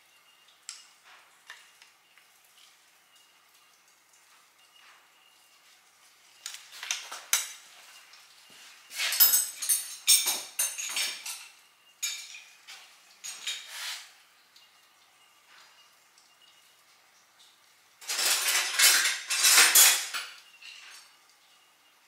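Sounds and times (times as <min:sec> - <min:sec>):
metal tools and parts clinking: 0:09.0 - 0:12.6, 0:13.2 - 0:13.7, 0:18.0 - 0:21.2.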